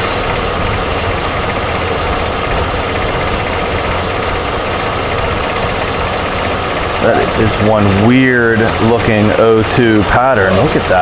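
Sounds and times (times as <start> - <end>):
engine idling rough: 0.0 - 11.0.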